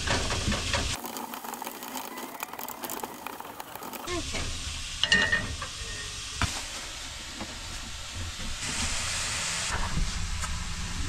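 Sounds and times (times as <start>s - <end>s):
sausage sizzling in a frying pan: 0.0s - 9.7s.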